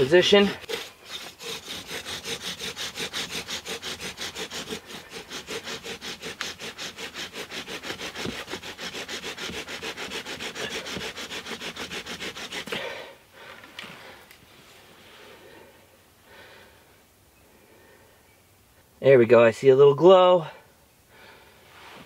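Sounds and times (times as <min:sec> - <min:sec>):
bow drill spindle grinding wood: 0:00.0 - 0:13.0.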